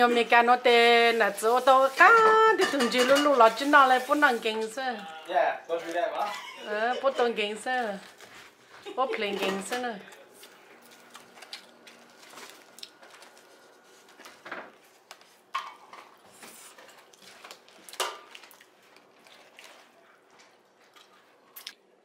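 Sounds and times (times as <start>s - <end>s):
dishes and utensils clinking: 1.9s - 4.2s, 9.2s - 9.9s, 15.5s - 17.1s.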